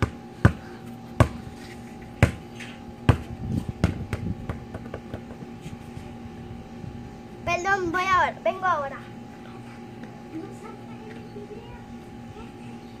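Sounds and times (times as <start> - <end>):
basketball bouncing: 0.0 - 1.4, 2.2 - 2.4, 3.0 - 5.5.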